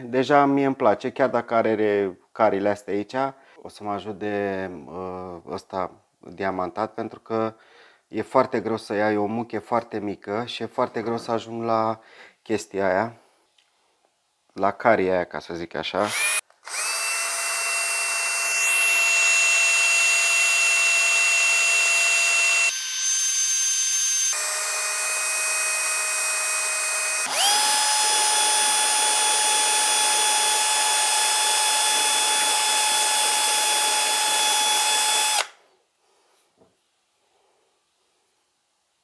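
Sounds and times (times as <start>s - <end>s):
power tool grinding stone: 26.2s - 35.5s.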